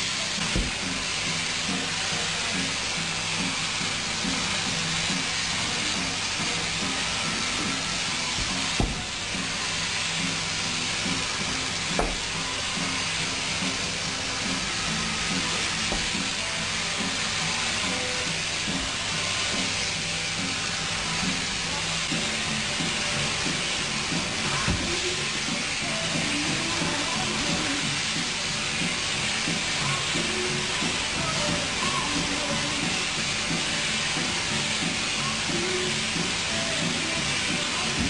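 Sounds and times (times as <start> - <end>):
sheep-shearing handpiece buzzing: 0.0 - 38.0.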